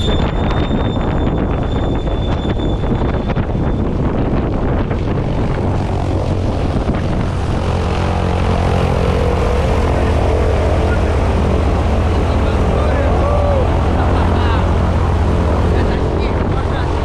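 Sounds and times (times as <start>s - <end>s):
gusty wind noise: 0.0s - 17.0s
propeller plane engine drone: 0.0s - 17.0s.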